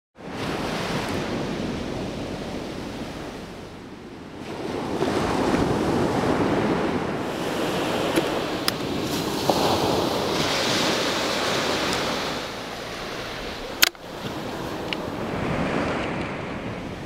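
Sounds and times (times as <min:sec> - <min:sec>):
small waves breaking on sand: 0:04.4 - 0:17.0.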